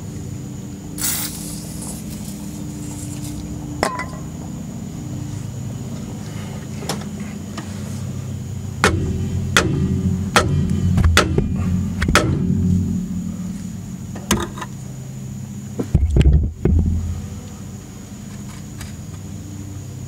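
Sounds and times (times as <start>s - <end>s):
low mechanical hum: 0.0s - 20.0s
brief hiss: 1.0s - 2.3s.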